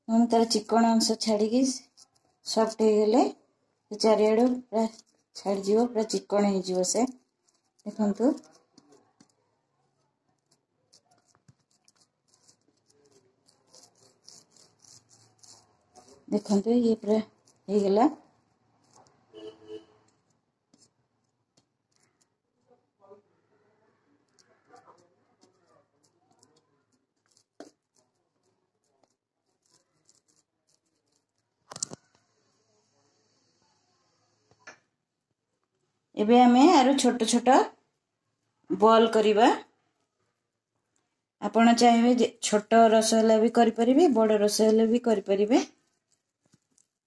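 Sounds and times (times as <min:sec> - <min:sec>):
palm rubbing dough on steel plate: 0:00.2 - 0:03.3, 0:03.9 - 0:09.4, 0:10.0 - 0:22.4, 0:24.2 - 0:33.0, 0:41.7 - 0:47.0.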